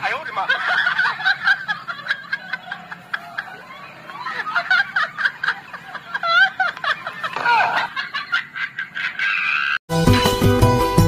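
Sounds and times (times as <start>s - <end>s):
person giggling: 1.9s - 9.2s.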